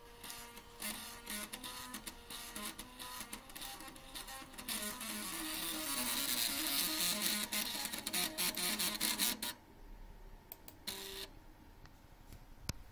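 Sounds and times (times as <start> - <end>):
floppy drive motor buzzing notes: 0.1 - 9.5.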